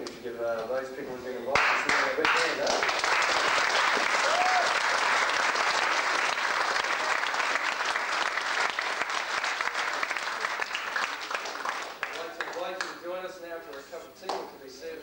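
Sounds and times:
crowd applauding: 1.6s - 13.0s.

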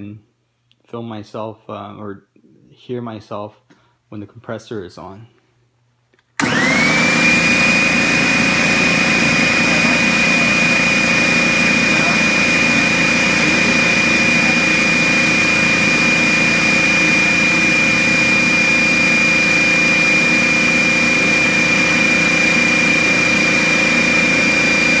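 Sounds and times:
air compressor running: 6.4s - 25.0s.

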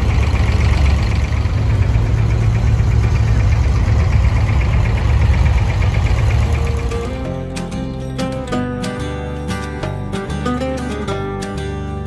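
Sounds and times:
boat diesel engine running: 0.0s - 8.6s.

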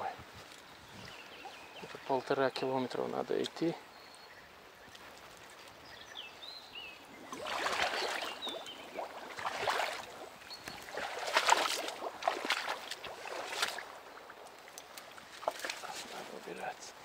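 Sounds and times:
bird chirping: 0.6s - 11.0s
water splashing and sloshing: 7.0s - 17.0s.

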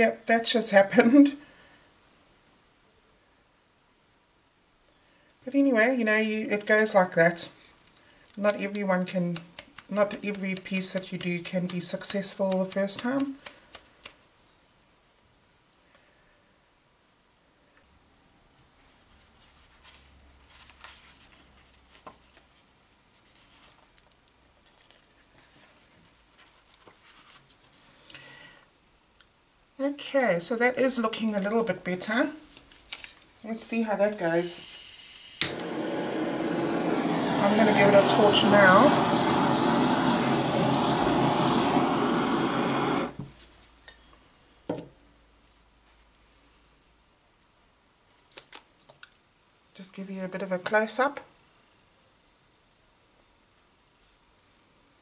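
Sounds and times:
paper rustling: 7.6s - 14.3s, 19.0s - 28.1s, 32.4s - 33.4s
gas torch flame hissing: 34.4s - 43.3s.

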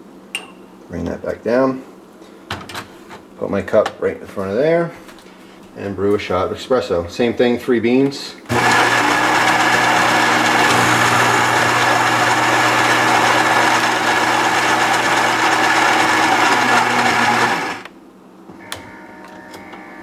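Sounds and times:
coffee grinder motor whirring: 8.5s - 17.9s.

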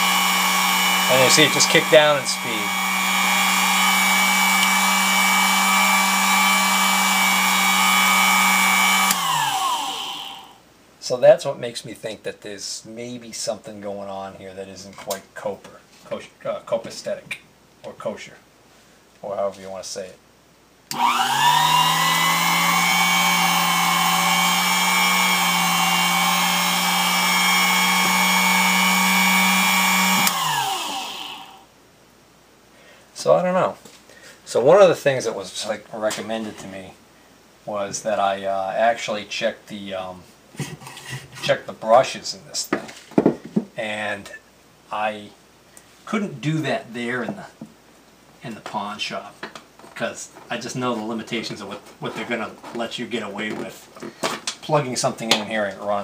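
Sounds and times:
drill press motor whining: 0.0s - 10.6s, 20.9s - 31.6s.

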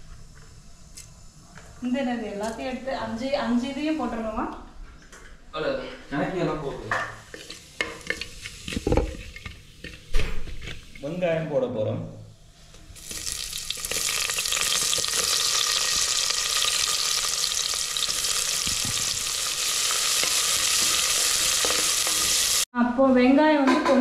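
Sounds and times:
onions sizzling in hot oil: 7.1s - 11.2s, 12.6s - 22.7s.

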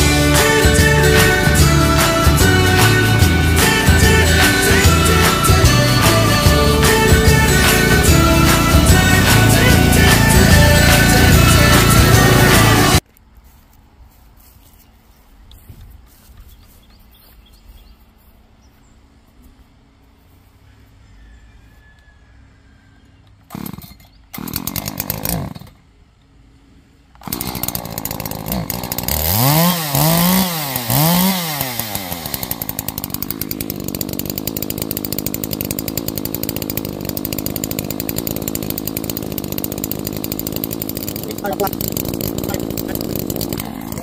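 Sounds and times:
chainsaw running and revving: 0.0s - 13.0s, 23.5s - 25.8s, 27.2s - 44.0s.

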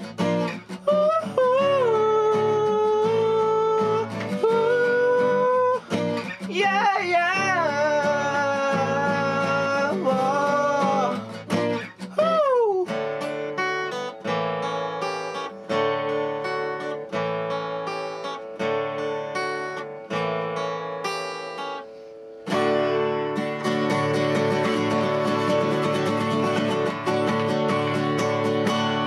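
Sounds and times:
acoustic guitar: 0.0s - 29.0s
person singing: 0.2s - 13.4s.

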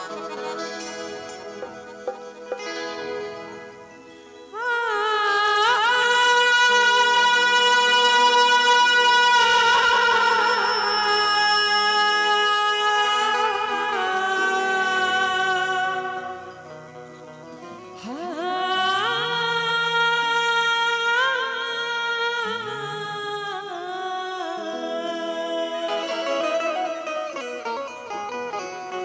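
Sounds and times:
musical accompaniment: 0.0s - 20.4s, 22.5s - 29.0s
woman singing into a microphone: 0.0s - 28.6s.

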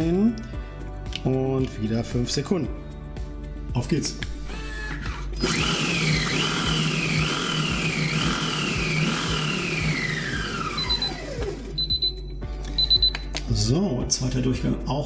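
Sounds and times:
food processor motor whine: 4.6s - 11.9s
short high beeps: 11.8s - 13.3s.

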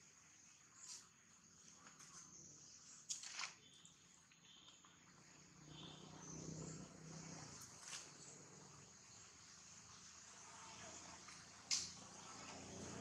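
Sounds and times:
high insect drone: 4.5s - 13.0s.

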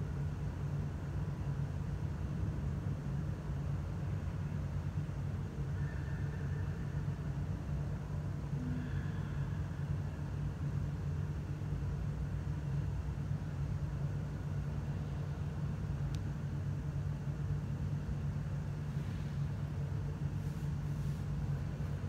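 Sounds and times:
low mechanical hum: 0.0s - 22.0s
faint click: 16.1s - 16.3s.

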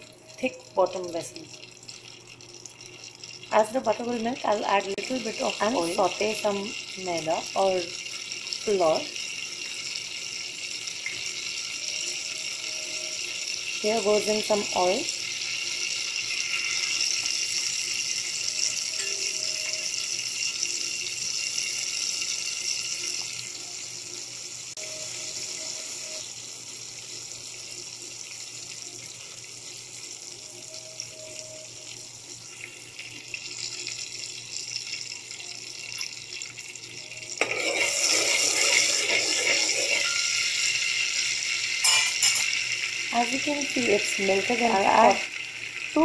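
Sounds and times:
butter and oil sizzling: 0.0s - 46.0s
spoon stirring hot fat: 37.4s - 40.6s.

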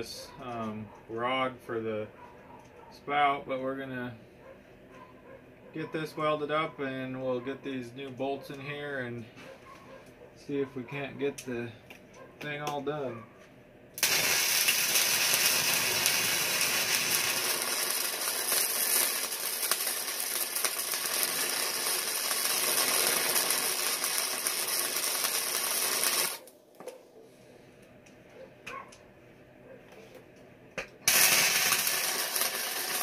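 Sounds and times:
welding arc crackling and hissing: 14.0s - 26.6s, 31.0s - 33.0s.

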